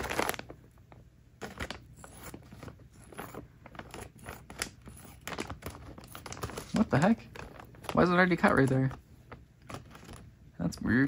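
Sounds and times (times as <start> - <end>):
plastic bag crinkling: 0.0 - 10.3.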